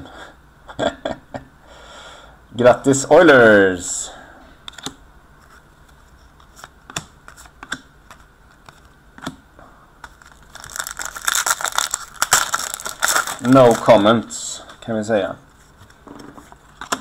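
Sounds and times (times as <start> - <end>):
pack wrapper crinkling: 10.0 - 14.1.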